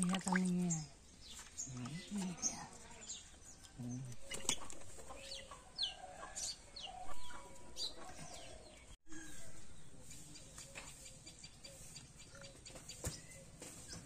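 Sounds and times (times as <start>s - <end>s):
chickens clucking: 4.2s - 8.8s.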